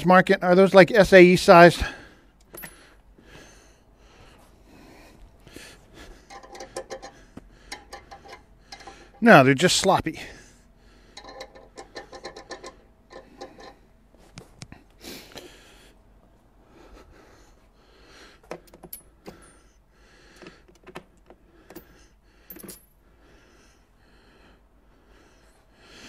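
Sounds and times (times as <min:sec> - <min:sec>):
metal sockets clinking: 0:06.2 - 0:09.2, 0:11.2 - 0:13.8.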